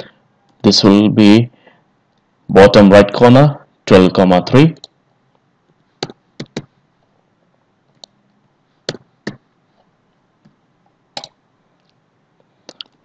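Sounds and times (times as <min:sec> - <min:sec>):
mouse and keyboard clicks: 0:11.2 - 0:11.4.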